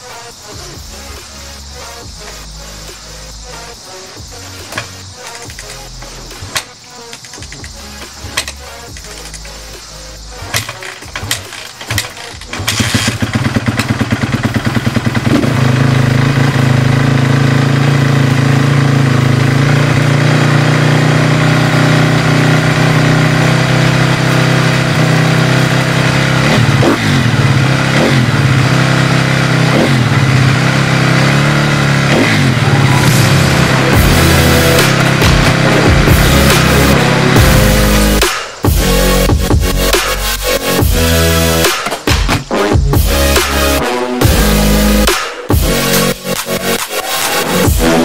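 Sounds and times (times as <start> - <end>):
engine revving: 0.8 - 48.0
motorcycle engine idling: 1.9 - 39.8.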